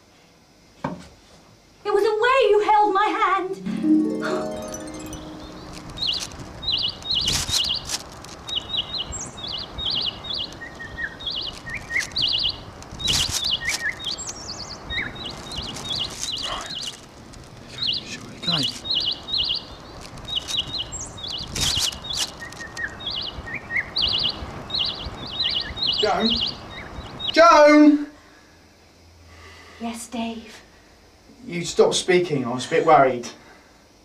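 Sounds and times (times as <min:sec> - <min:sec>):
outdoor background hiss: 0:00.0 - 0:34.0
small birds chirping: 0:04.7 - 0:27.6.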